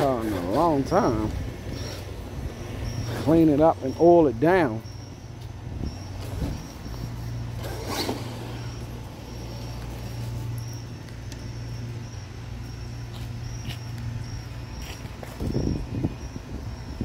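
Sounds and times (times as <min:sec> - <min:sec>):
toy truck electric motor running: 0:00.0 - 0:03.3, 0:05.9 - 0:12.2.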